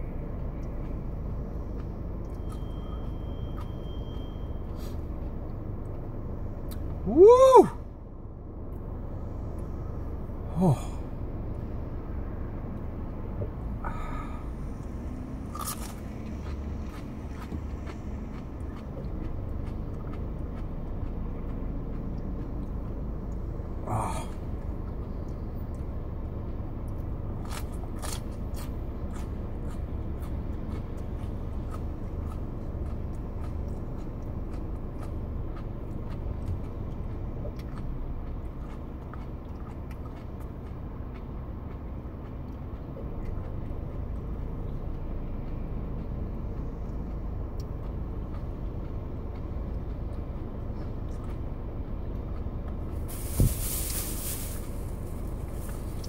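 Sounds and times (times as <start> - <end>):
car engine rumble from inside cabin: 0.0 - 56.0
fan running: 52.7 - 56.0
rush of hiss: 53.1 - 55.0.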